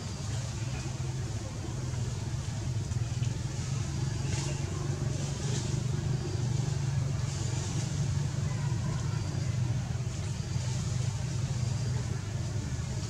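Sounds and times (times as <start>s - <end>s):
engine humming steadily: 0.0s - 13.0s.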